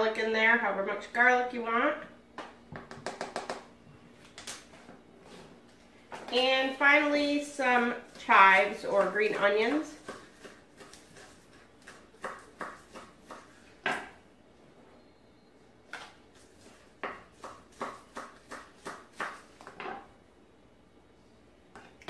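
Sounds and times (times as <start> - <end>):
knife chopping on wooden counter: 8.9 - 14.1, 17.0 - 20.0.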